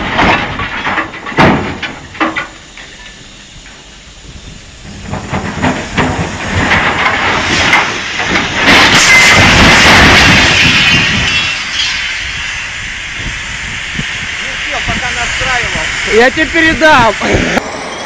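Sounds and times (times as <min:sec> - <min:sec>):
wagon tipping over crash: 0:00.0 - 0:02.6, 0:04.9 - 0:11.9
railway wagons clanking: 0:00.0 - 0:18.0.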